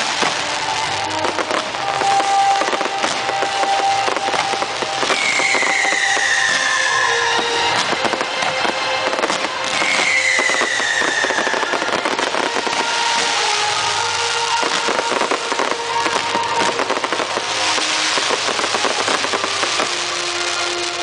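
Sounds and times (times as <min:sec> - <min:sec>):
fireworks crackling and popping: 0:00.0 - 0:21.0
firework whistle falling in pitch: 0:00.1 - 0:21.0
thin steady whistling tones: 0:03.4 - 0:07.7, 0:09.6 - 0:13.0.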